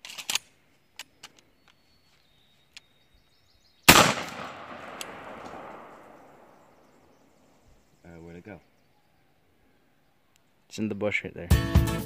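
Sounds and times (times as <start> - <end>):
sharp clicks: 3.9 - 6.2
shotgun blast with echo: 3.9 - 6.5.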